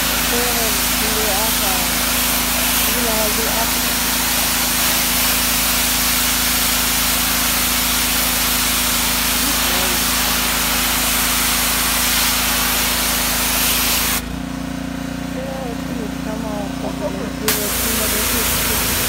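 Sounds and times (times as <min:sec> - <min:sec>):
water spray hissing on concrete: 0:00.0 - 0:14.2, 0:17.5 - 0:19.0
engine humming: 0:14.2 - 0:19.0.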